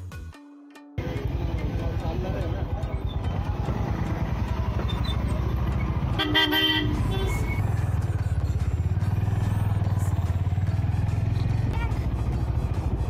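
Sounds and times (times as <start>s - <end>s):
motorcycle engine running: 1.0s - 13.0s
vehicle horn honk: 6.1s - 7.6s.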